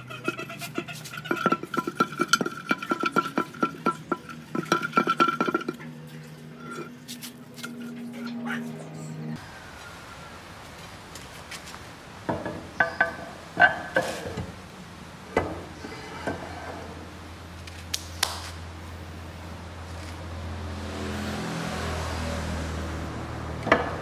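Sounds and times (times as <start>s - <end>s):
metal-on-metal clanks with ringing: 0.0s - 7.0s.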